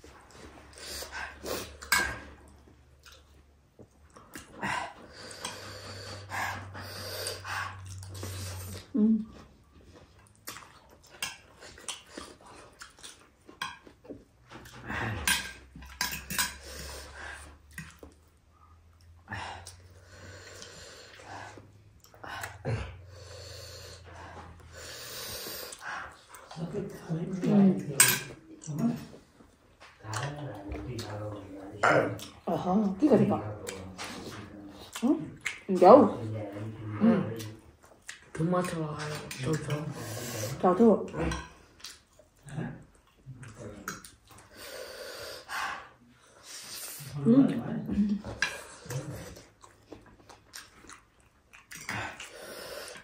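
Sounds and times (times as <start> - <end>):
person chewing: 0.1 - 26.6, 33.4 - 40.6, 41.3 - 44.8, 48.3 - 53.0
breathing: 4.6 - 8.7, 16.5 - 17.6, 19.2 - 26.2, 44.4 - 47.1.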